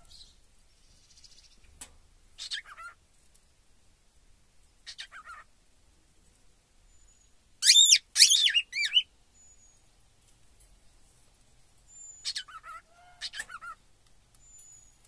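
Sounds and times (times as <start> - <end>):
cockatiel squeaky whistling calls: 7.1 - 9.6, 11.9 - 13.8.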